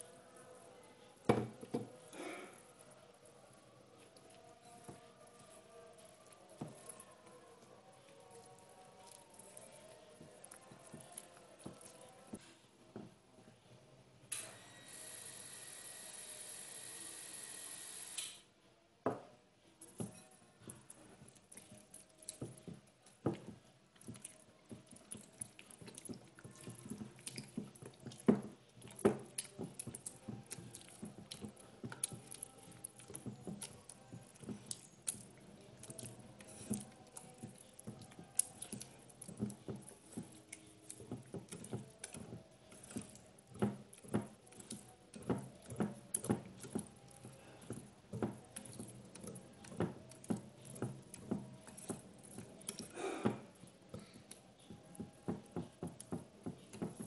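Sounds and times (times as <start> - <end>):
batter slapping: 21.1 - 57.0.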